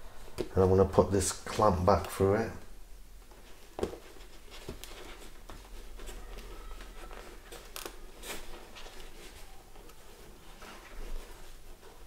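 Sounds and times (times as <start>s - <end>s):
fabric pad rustling: 3.1s - 12.0s.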